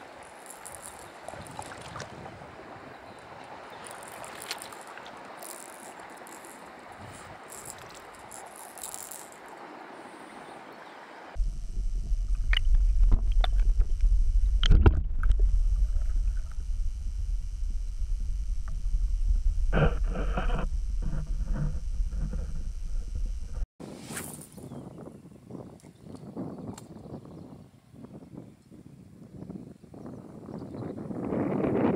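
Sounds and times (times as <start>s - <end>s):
river water hiss: 0.0s - 11.4s
underwater low rumble: 11.4s - 23.7s
underwater clicks and knocks: 12.3s - 16.6s.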